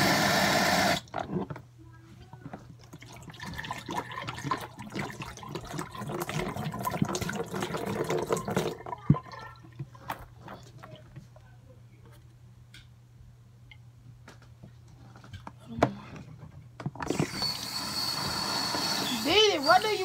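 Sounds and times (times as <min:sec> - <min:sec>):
water splashing into sink: 0:02.8 - 0:10.1.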